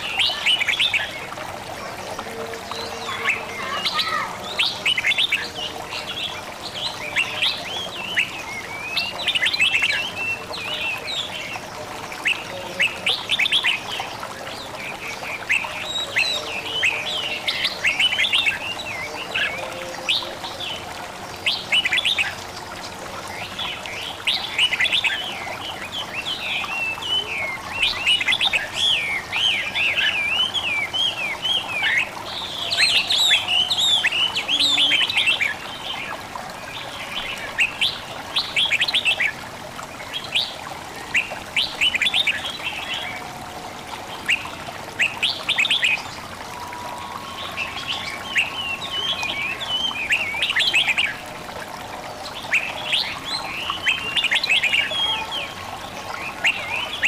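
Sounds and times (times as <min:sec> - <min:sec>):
running water babbling: 0:00.0 - 0:57.0
songbirds chirping: 0:00.0 - 0:57.0.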